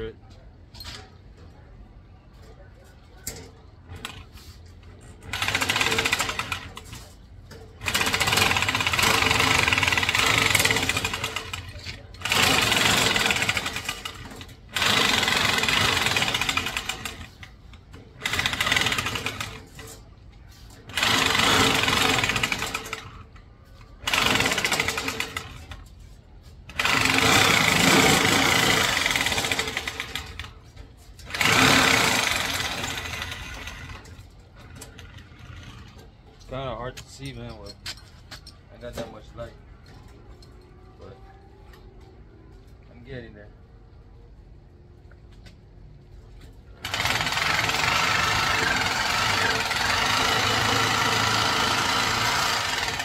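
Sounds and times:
power tool cutting steel: 7.8 - 17.4, 20.9 - 23.1, 26.7 - 30.5, 31.2 - 34.2, 46.8 - 53.0.

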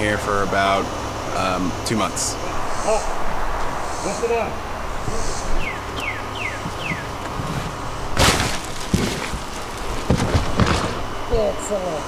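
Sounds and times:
smaller thumps: 6.6 - 11.3
sofa crashing onto ground: 8.1 - 11.2.

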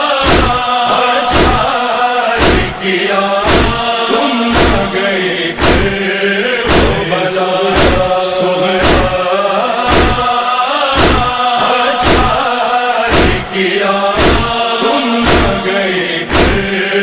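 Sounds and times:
voices chanting a lament: 0.0 - 17.0
heavy chest-beating thumps: 0.2 - 0.7, 1.3 - 1.8, 2.4 - 2.8, 3.4 - 3.9, 4.5 - 6.0, 6.7 - 8.2, 8.8 - 9.2, 9.9 - 10.3, 11.0 - 12.4, 13.1 - 13.6, 14.2 - 14.6, 15.2 - 16.8.

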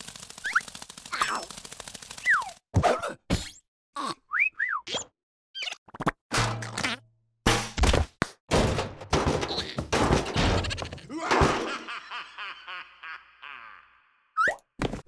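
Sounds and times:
cartoon characters laughing: 10.4 - 14.5.

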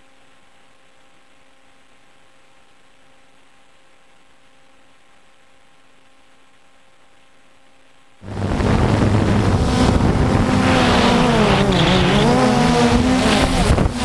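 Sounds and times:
faint electrical hum: 0.0 - 14.0
quadcopter motors whirring: 8.3 - 14.0.

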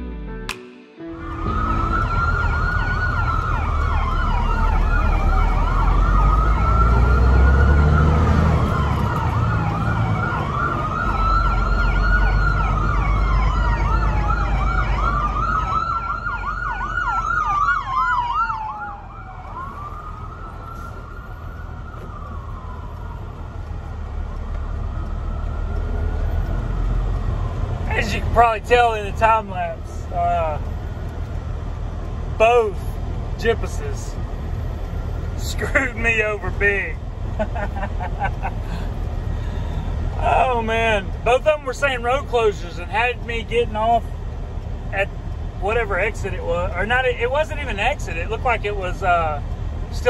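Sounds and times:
emergency siren wailing and yelping: 1.1 - 31.7, 33.6 - 41.1
truck engine rumble: 1.2 - 50.0.

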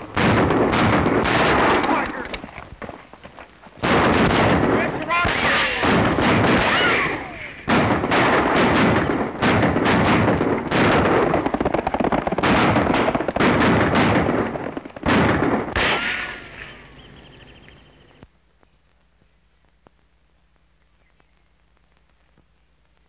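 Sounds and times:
rapid revolver gunfire: 0.1 - 2.4, 3.8 - 16.8
ricochet whines: 15.8 - 16.9.

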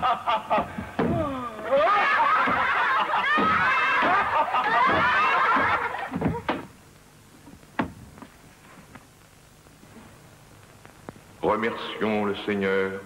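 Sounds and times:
high voices laughing: 0.0 - 6.5.

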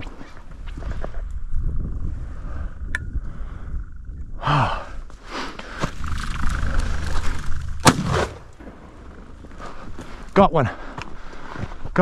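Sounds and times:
shotgun blasts: 7.8 - 8.6
footsteps on rocky snowy ground: 8.6 - 12.0.

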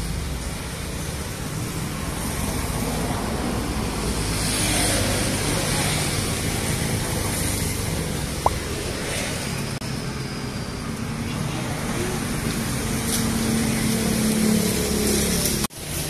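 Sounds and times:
traffic rumble: 0.0 - 16.0.

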